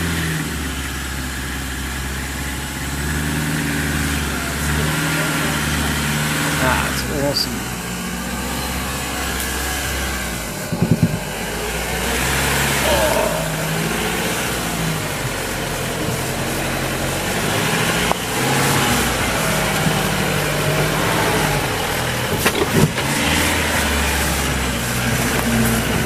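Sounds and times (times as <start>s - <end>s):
truck diesel engine at low revs: 0.0s - 26.0s.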